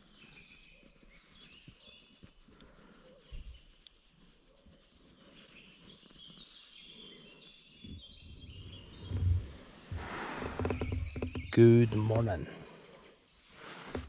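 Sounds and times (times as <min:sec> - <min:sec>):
small birds chirping: 0:00.0 - 0:14.0
low bumps: 0:07.9 - 0:12.5.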